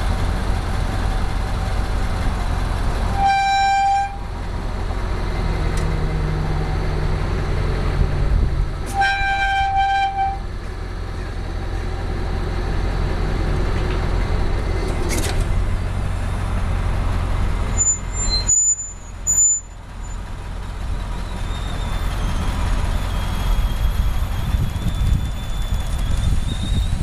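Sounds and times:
diesel engine idling: 0:00.0 - 0:03.2, 0:04.1 - 0:08.8, 0:10.2 - 0:26.8.

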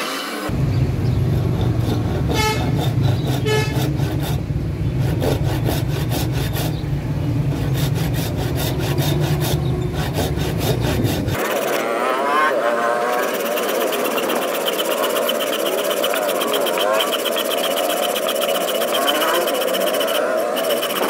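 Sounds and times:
low engine hum: 0:00.5 - 0:05.2, 0:06.7 - 0:11.4
hand saw rasping through wood: 0:01.4 - 0:06.8, 0:07.5 - 0:21.0
tooting notes: 0:11.8 - 0:21.0.

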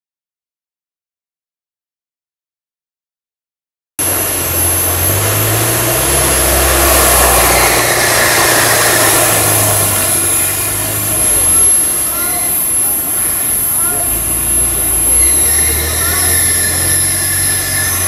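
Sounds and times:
engine running hard: 0:04.0 - 0:18.0
thin high whine: 0:04.0 - 0:18.0.

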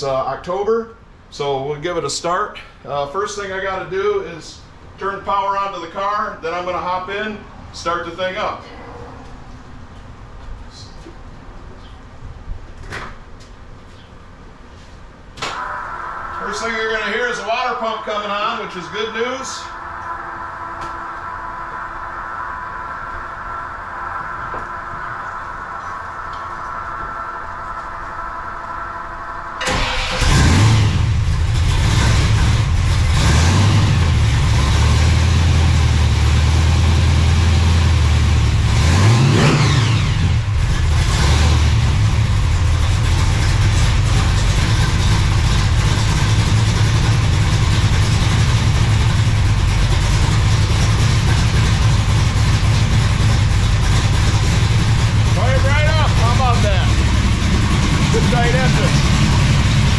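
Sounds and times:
electric water pump whining: 0:15.5 - 0:35.8, 0:36.6 - 0:59.9
car engine starting and revving: 0:15.5 - 0:59.9
car engine idling loudly: 0:29.6 - 0:59.9.

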